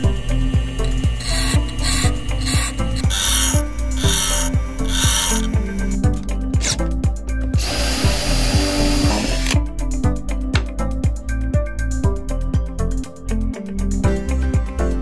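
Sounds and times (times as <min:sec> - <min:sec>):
bench grinder grinding drill bit: 0:00.0 - 0:06.8, 0:07.6 - 0:09.6
electronic music with steady beat: 0:00.0 - 0:13.2
power drill boring into wood: 0:00.1 - 0:06.8, 0:07.6 - 0:09.6.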